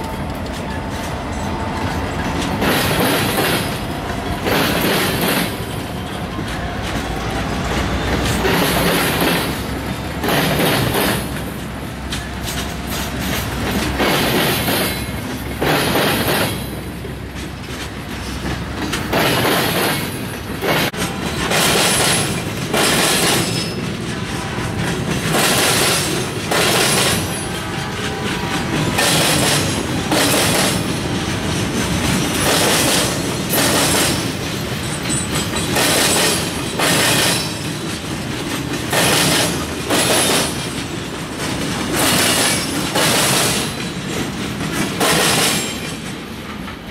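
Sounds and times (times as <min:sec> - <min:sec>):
freight train rolling rumble: 0:00.0 - 0:46.9
train wheels clattering: 0:00.0 - 0:46.9.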